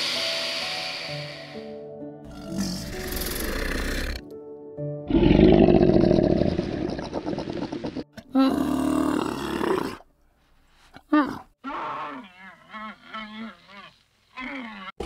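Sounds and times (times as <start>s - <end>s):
music: 0.0s - 5.4s
large animal roaring: 5.1s - 10.0s.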